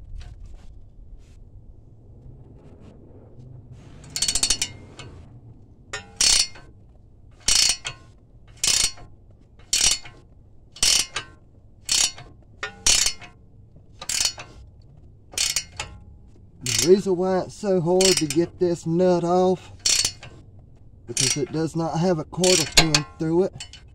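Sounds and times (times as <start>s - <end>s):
ratchet wrench clicking: 4.0s - 5.2s, 6.0s - 6.7s, 7.4s - 10.2s, 10.8s - 13.3s, 14.0s - 14.6s, 15.4s - 15.9s, 16.6s - 18.9s, 19.7s - 20.4s, 21.1s - 21.8s, 22.4s - 23.9s.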